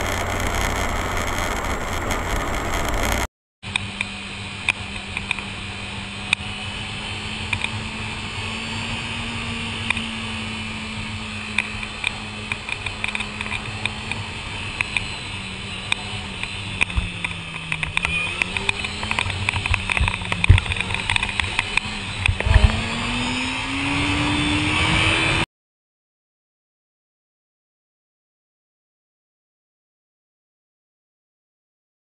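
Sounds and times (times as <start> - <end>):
sharp ticks and rattles: 0.0 - 3.3, 16.4 - 22.8
motorcycle engine running: 0.0 - 25.4.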